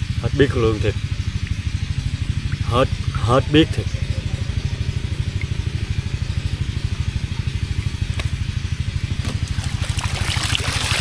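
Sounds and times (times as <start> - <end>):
small boat engine idling: 0.0 - 11.0.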